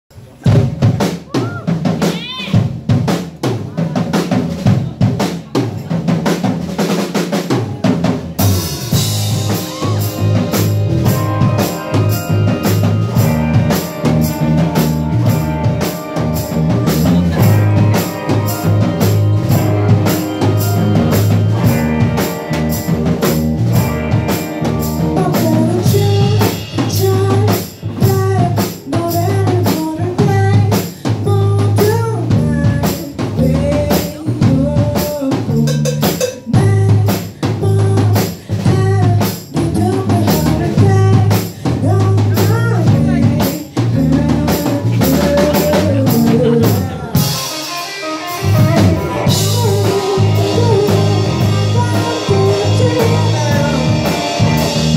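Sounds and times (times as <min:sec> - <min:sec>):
indie rock band playing: 0:00.2 - 0:54.9
woman singing lead vocal: 0:24.9 - 0:47.5, 0:48.4 - 0:54.9.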